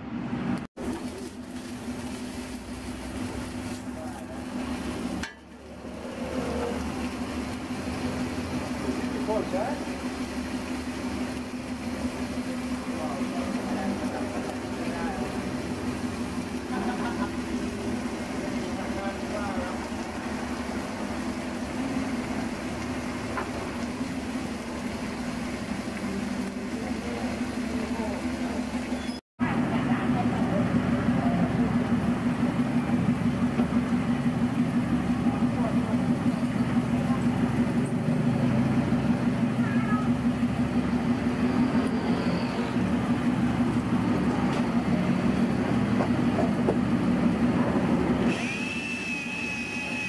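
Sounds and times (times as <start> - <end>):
steady mechanical hum: 0.0 - 50.0
bacon sizzling on a griddle: 0.8 - 28.6.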